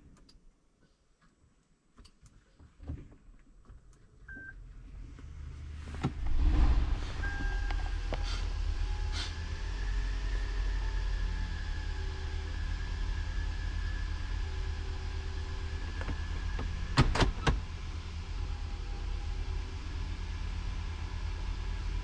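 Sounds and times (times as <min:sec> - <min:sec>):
car engine starting and running: 0:04.3 - 0:22.0
high whine: 0:06.2 - 0:12.8
short beep: 0:06.4 - 0:08.5.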